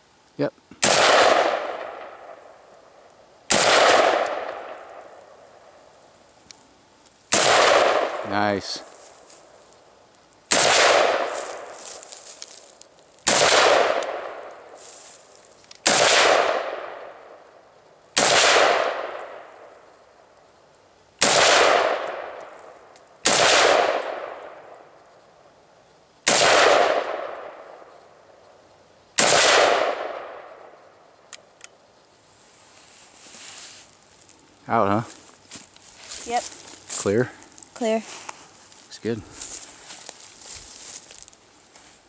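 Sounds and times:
rifle shots with echo: 0.8s - 2.6s, 3.5s - 5.2s, 7.3s - 8.5s, 10.5s - 11.8s, 13.2s - 14.7s, 15.8s - 17.2s, 18.2s - 19.5s, 21.2s - 22.5s, 23.2s - 24.7s, 26.2s - 27.7s, 29.2s - 30.7s
faint rifle clicks: 31.3s - 31.8s.

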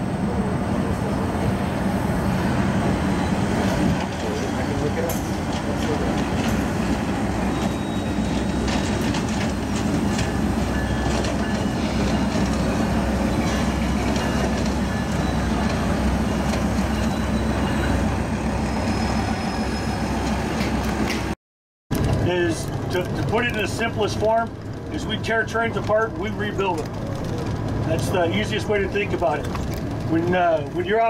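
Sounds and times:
locomotive engine drone: 0.0s - 31.0s
high wheel squeals: 5.9s - 21.0s.

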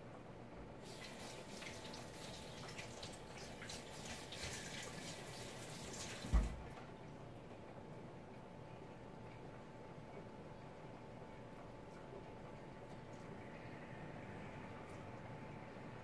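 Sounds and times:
water running from a tap: 0.8s - 6.6s
tap thump: 6.3s - 6.6s.

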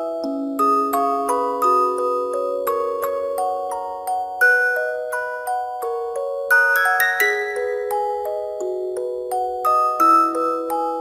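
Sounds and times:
music box melody: 0.0s - 11.0s.

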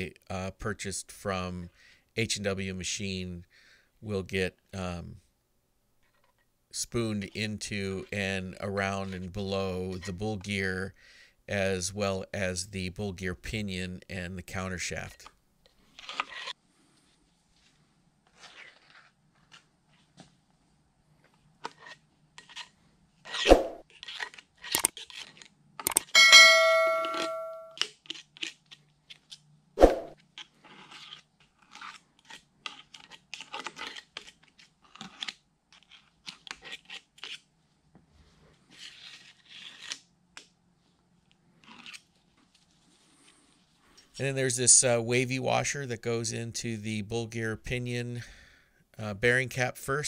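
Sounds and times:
metallic ring: 26.1s - 27.8s.

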